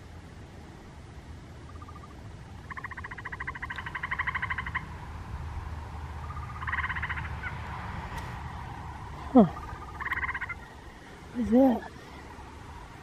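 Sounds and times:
treefrog pulsed trill: 1.6s - 4.9s, 6.2s - 7.3s, 9.4s - 10.7s.

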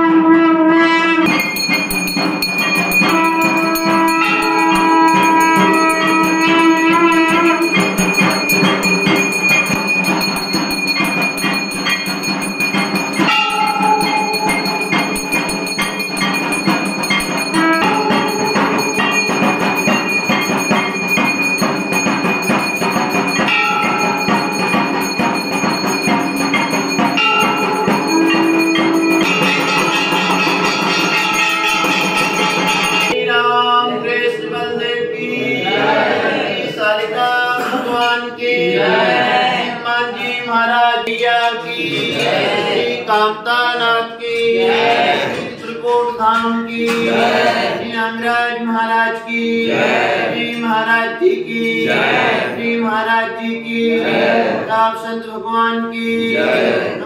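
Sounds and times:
other instruments: 1.1s - 33.3s
hand bell and temple bells ringing: 1.2s - 33.2s.

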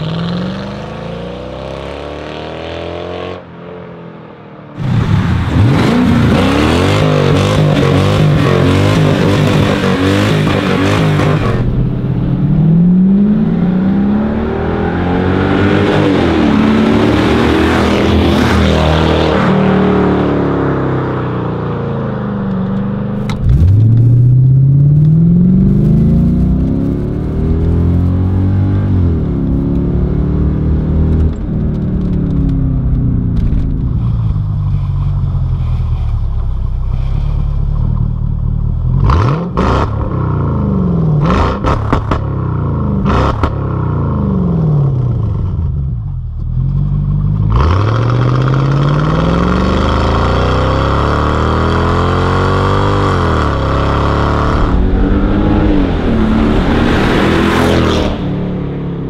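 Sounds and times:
car engine revving: 4.8s - 36.4s, 37.0s - 59.0s
exhaust cracks: 22.4s - 30.0s, 30.7s - 40.1s, 52.4s - 59.0s
car passing by: 53.4s - 59.0s.

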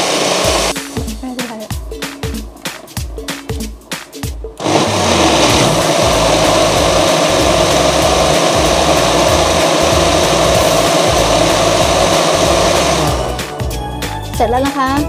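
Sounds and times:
electric blender running: 0.0s - 0.7s, 4.6s - 13.4s
background music with a beat: 0.1s - 15.0s.

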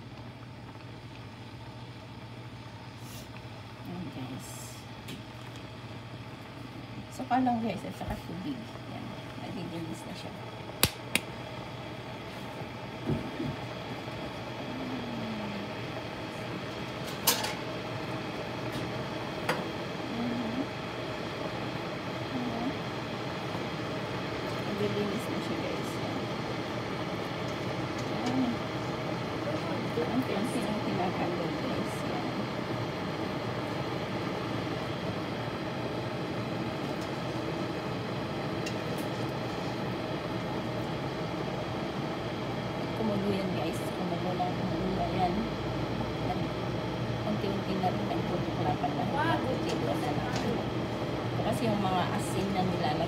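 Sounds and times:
kettle boiling: 0.0s - 53.0s
kettle clicks: 10.8s - 11.4s.

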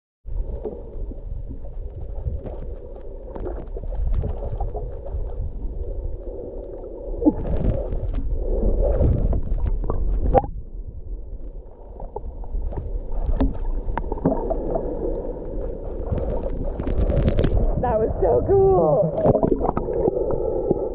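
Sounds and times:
underwater rumble and sloshing: 0.3s - 20.9s
underwater clicks and knocks: 9.0s - 10.6s, 12.0s - 14.8s, 19.2s - 20.1s.

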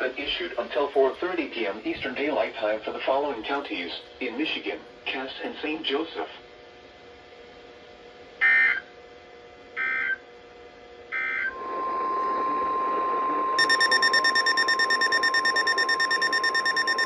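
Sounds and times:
steady warning tone: 11.2s - 17.0s
data bursts: 13.6s - 17.0s
rapid pulsing beep alert: 13.6s - 17.0s.

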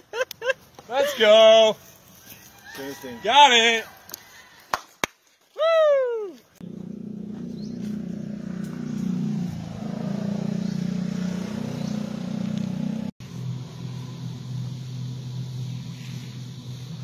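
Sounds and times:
low engine drone: 6.6s - 17.0s
scooter engine running: 6.6s - 17.0s.

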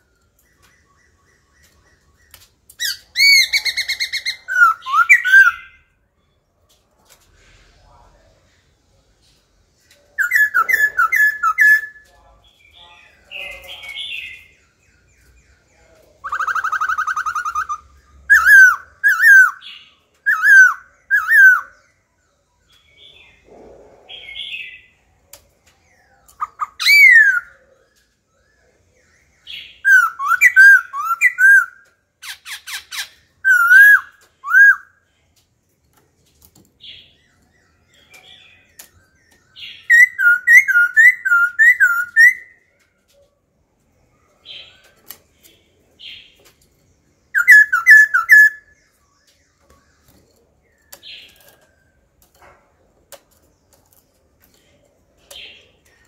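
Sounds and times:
rapid chatter of clicks: 0.2s - 4.2s, 25.2s - 26.8s, 42.7s - 47.1s, 49.2s - 56.0s
bird singing whistled phrases: 2.8s - 5.9s, 16.2s - 21.8s, 26.4s - 27.6s, 29.5s - 31.8s, 33.4s - 35.0s, 38.0s - 42.7s, 47.3s - 48.8s.

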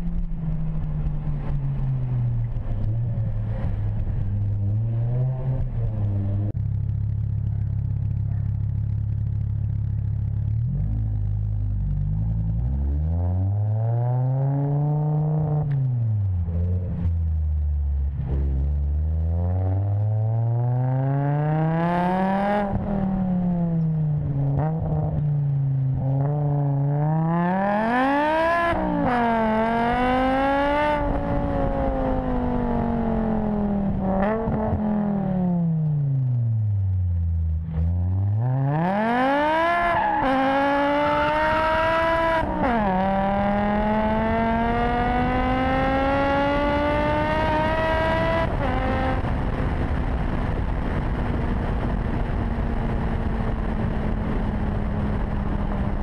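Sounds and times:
car engine accelerating: 0.0s - 56.0s.

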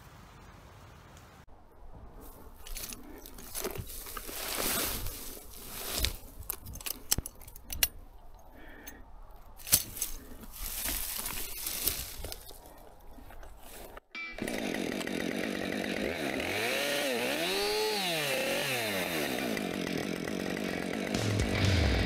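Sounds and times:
crunching and rustling: 2.0s - 14.0s.

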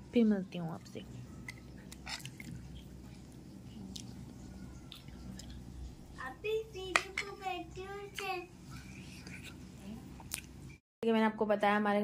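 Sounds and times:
quiet chewing: 1.4s - 5.7s, 8.1s - 10.6s.

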